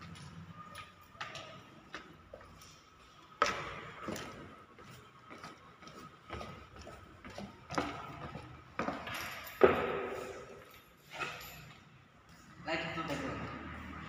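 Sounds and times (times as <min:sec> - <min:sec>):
footsteps going down stairs: 0:01.0 - 0:10.8.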